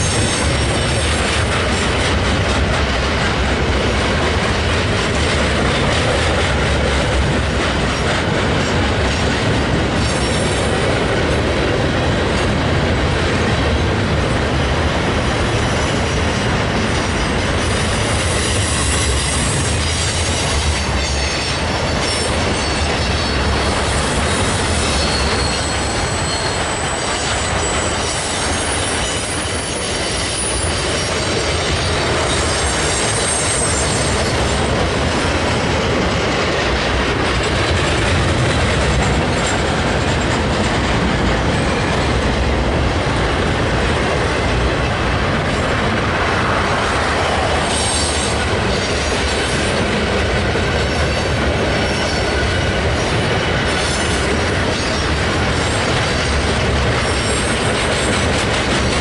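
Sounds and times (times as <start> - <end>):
train wheels clattering on bridge: 0.0 - 59.0
faint high wheel squeals: 21.1 - 31.1, 32.3 - 34.3.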